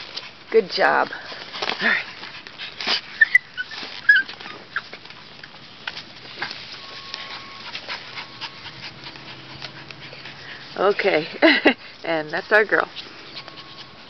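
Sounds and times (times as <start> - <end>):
dog digging in soil: 0.0 - 14.0
dog whimpering: 3.0 - 5.0, 6.4 - 11.8, 12.5 - 14.0.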